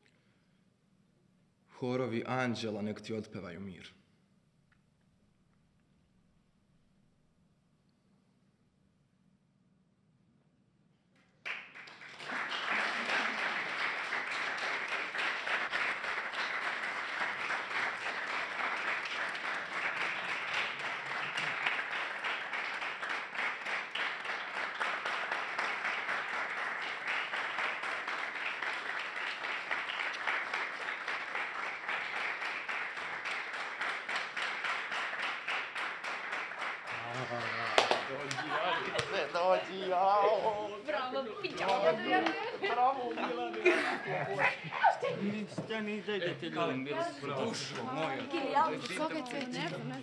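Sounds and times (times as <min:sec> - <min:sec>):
audience applauding: 0:11.4 - 0:40.6.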